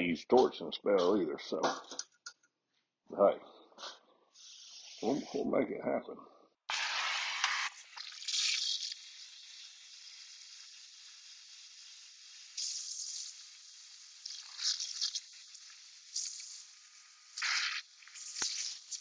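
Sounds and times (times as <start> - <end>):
cutting torch hissing: 4.3 - 5.5, 6.7 - 19.0.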